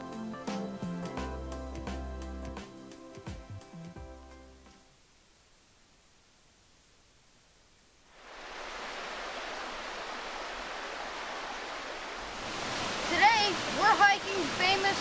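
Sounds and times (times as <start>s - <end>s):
stream water rushing: 8.1s - 15.0s.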